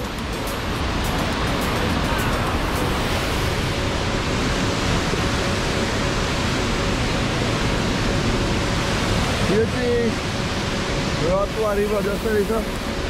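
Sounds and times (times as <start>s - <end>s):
river rapids rushing: 0.0s - 13.0s.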